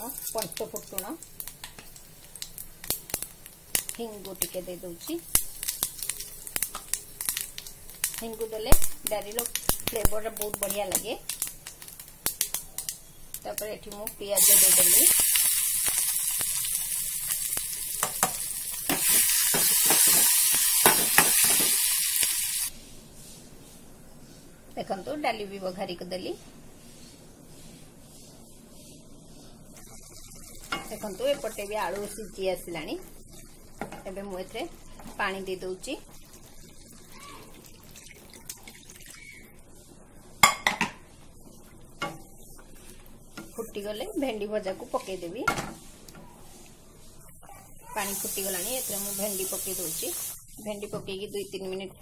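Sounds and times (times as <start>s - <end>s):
onions sizzling in hot oil: 0.0s - 22.7s, 29.7s - 46.2s, 47.1s - 51.9s
utensils knocking on pan: 18.0s - 21.8s
water pouring into curry: 36.1s - 39.3s.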